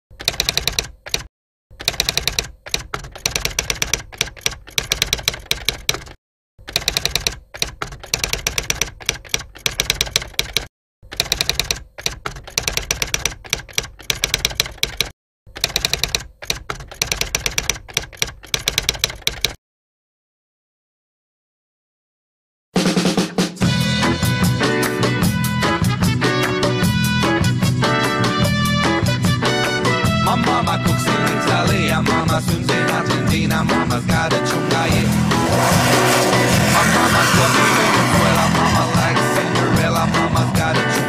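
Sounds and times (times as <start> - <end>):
typewriter keys clattering: 0.2 - 19.6.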